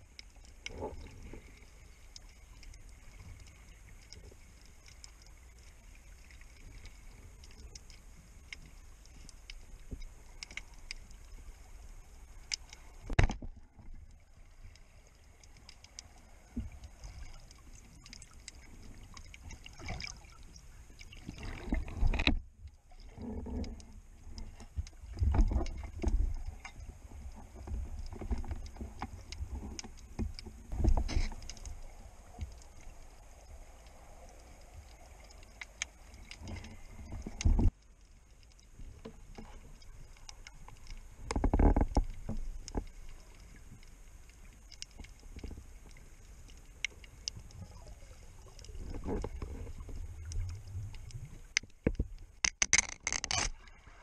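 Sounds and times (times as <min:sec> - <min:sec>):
muffled water rushing and sloshing: 0:00.0 - 0:52.5, 0:53.4 - 0:54.0
gear clicks and knocks: 0:38.9 - 0:43.2, 0:50.9 - 0:53.5.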